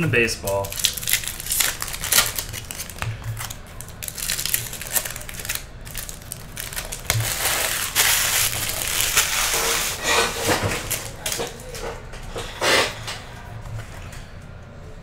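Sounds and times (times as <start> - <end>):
foil wrappers crinkling: 0.2 - 12.0.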